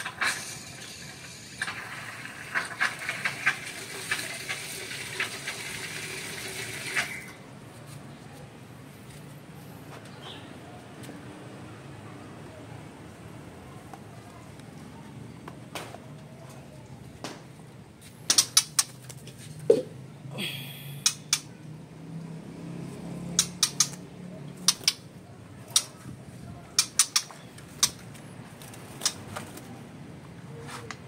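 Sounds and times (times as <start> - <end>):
clicks and taps in wire birdcage: 18.2 - 19.4, 21.0 - 21.5, 23.3 - 29.6.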